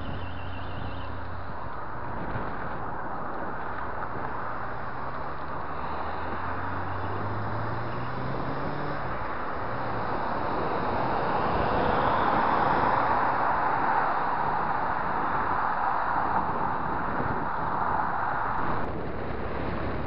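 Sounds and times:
car passing close: 0:00.0 - 0:20.0
road noise: 0:00.0 - 0:20.0
wind noise: 0:00.0 - 0:20.0
motorcycle engine accelerating: 0:05.0 - 0:13.3.

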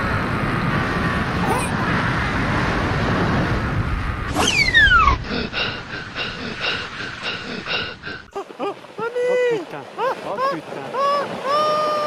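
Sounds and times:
squeaky cartoon chirps: 0:04.3 - 0:05.2.

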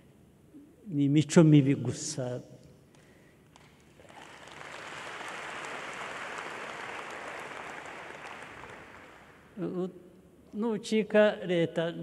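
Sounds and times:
large audience applauding: 0:03.6 - 0:09.5.

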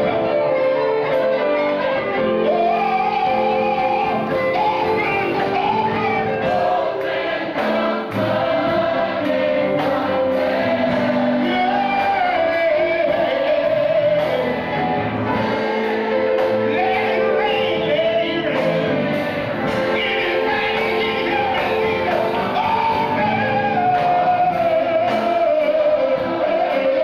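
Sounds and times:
held accompaniment chords: 0:00.0 - 0:27.0
man singing into a microphone: 0:02.0 - 0:07.0, 0:11.4 - 0:15.4, 0:16.1 - 0:27.0
voices singing along: 0:02.0 - 0:27.0.

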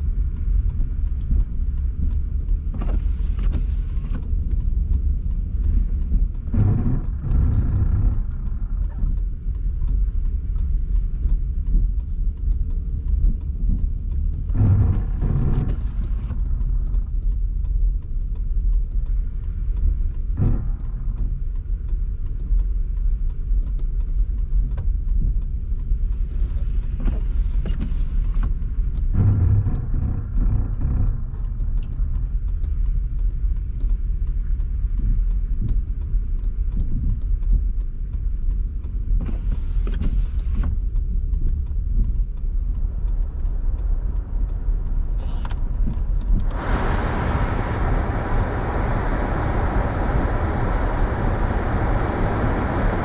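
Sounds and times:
car tyres and engine rumble: 0:00.0 - 0:53.0
hiss: 0:45.2 - 0:45.5, 0:46.4 - 0:53.0.

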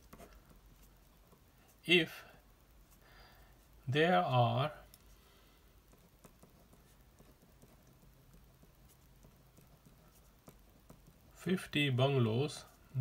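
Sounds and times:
pen writing on paper: 0:05.9 - 0:11.3.

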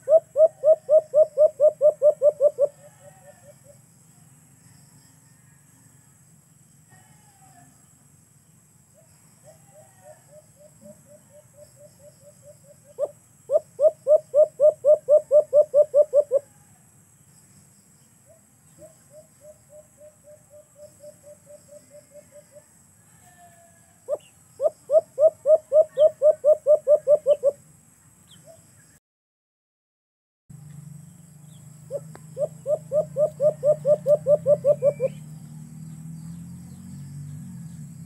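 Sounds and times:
dove calling: 0:00.0 - 0:03.8, 0:09.0 - 0:16.6, 0:18.2 - 0:22.7, 0:24.0 - 0:27.6, 0:31.4 - 0:35.5.

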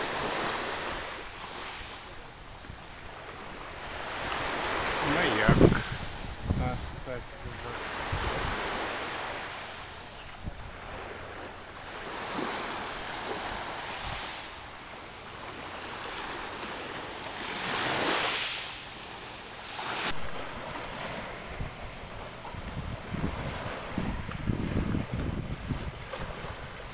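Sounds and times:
wind buffeting microphone: 0:00.0 - 0:14.8, 0:20.1 - 0:26.9
small waves washing onto shore: 0:00.0 - 0:26.9.

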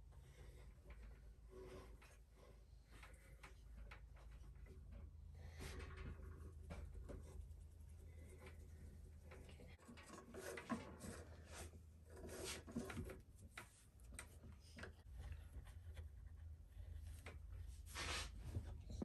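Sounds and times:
yarn rustling and clicks on loom: 0:08.4 - 0:15.1.

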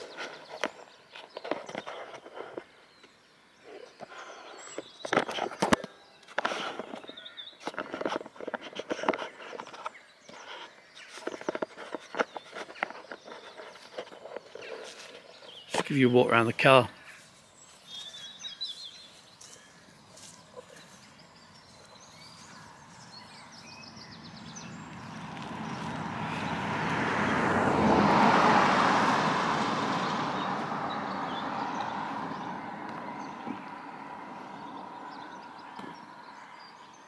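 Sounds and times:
birds chirping: 0:00.0 - 0:37.0
passing engine: 0:18.9 - 0:36.9.

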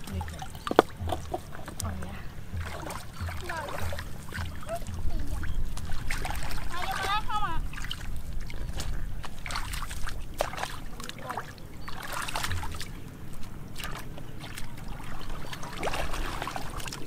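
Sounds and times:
splashing in muddy water: 0:00.0 - 0:17.0.

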